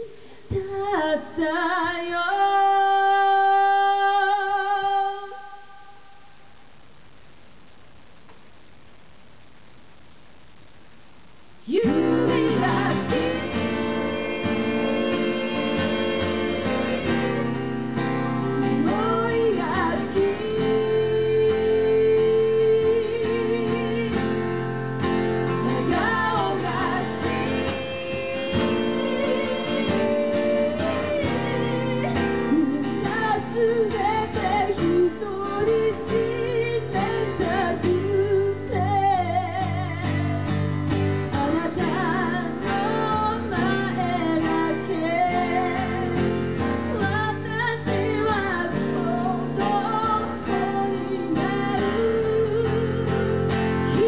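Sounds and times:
woman singing: 0.0 - 6.4, 11.6 - 24.7, 25.5 - 40.6, 41.3 - 54.0
strummed acoustic guitar: 11.8 - 54.0.

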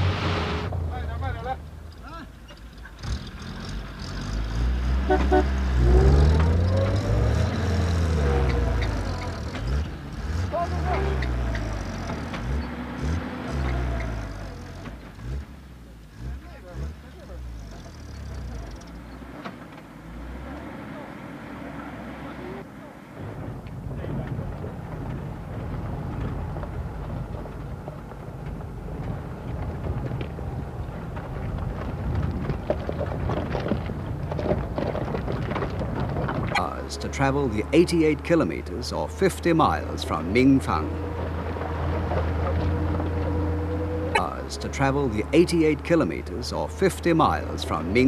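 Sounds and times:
truck rumbling: 0.0 - 48.0
vehicle engines revving: 0.0 - 48.0
light rattles and knocks: 23.4 - 36.6.

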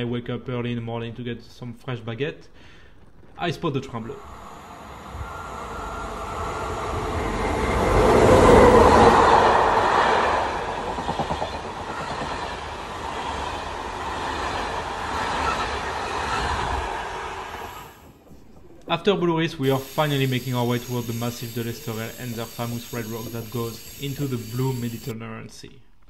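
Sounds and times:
train passing close by: 4.2 - 18.3.

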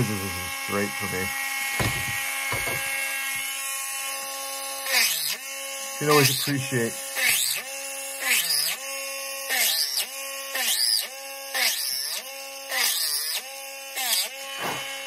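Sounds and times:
bit grinding into wood: 0.0 - 3.6
rotary tool whining: 0.0 - 15.0.

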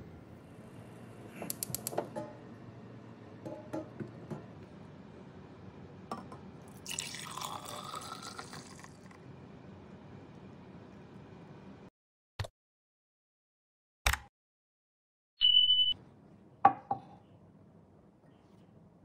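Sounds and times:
milk pouring into a jug: 6.7 - 9.2.

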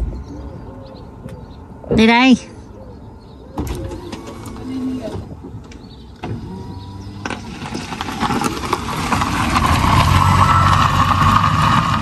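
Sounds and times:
car driving past: 8.9 - 12.0.

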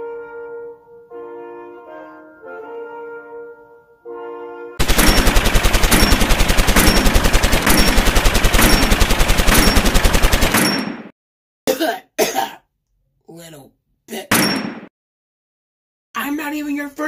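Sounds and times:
brass music: 0.0 - 4.8
machine-gun fire: 4.8 - 11.1.

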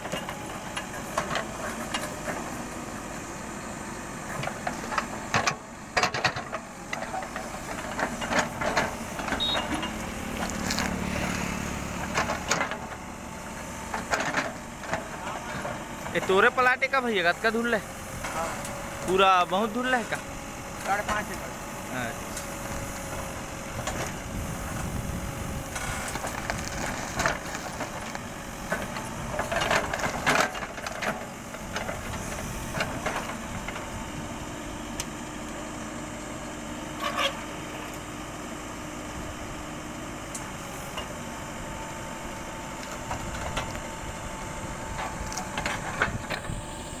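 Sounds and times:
diesel engine running: 0.0 - 47.0
roots and wood cracking: 10.2 - 12.5, 26.0 - 29.0.

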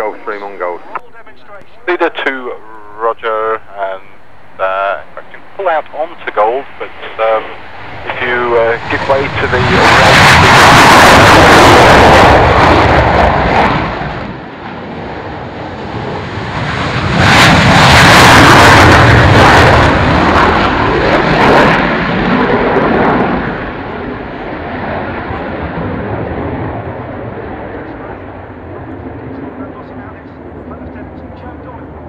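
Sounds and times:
jet roar: 0.0 - 32.0.

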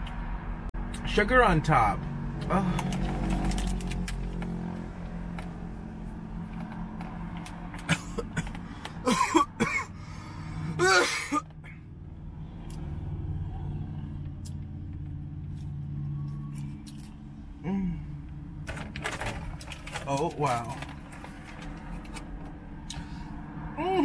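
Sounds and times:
woman coughing: 7.9 - 9.9, 10.8 - 11.4.

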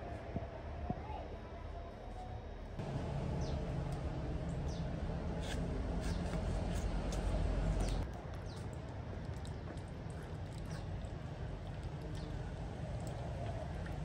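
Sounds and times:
low steady rumble: 2.7 - 8.1
small birds chirping: 3.3 - 3.7, 4.5 - 5.0.

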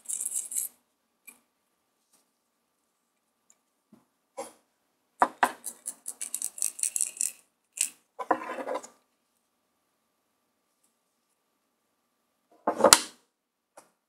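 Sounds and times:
wristwatch rattling when shaken: 0.0 - 0.8, 5.5 - 8.0.

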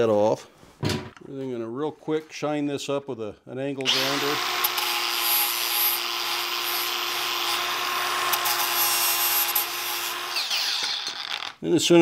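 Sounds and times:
angle grinder grinding steel: 3.8 - 11.6.

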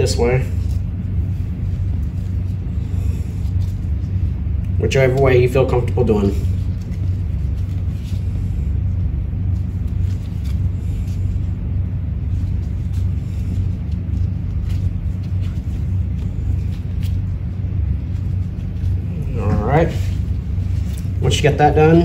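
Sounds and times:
casting tape crinkling: 0.0 - 22.0
low rumble: 0.0 - 22.0.

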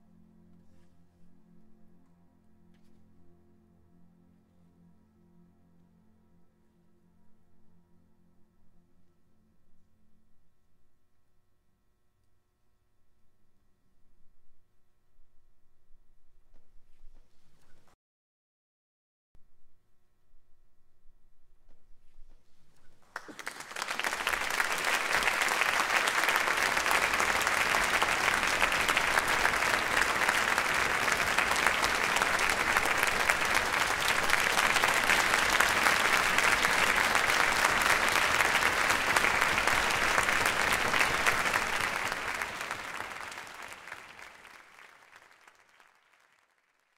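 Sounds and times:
audience applauding: 23.0 - 46.9.

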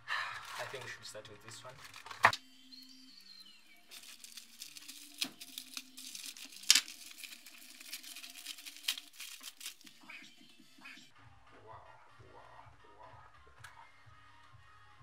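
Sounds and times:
plastic bag ripping: 0.4 - 1.0, 1.6 - 2.4, 3.9 - 10.1
plastic bag crinkling: 0.4 - 2.4, 3.8 - 10.1.

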